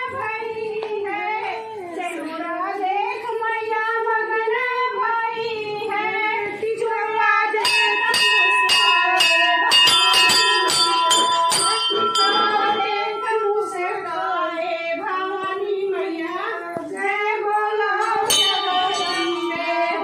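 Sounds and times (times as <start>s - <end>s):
person singing: 5.4s - 20.0s
temple bells ringing: 7.6s - 15.4s, 18.2s - 20.0s.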